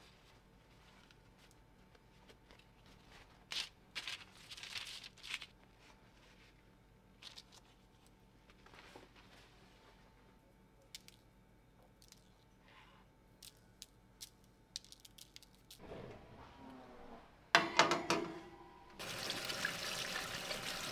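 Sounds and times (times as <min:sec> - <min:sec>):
baking parchment crinkling: 0:00.6 - 0:09.6.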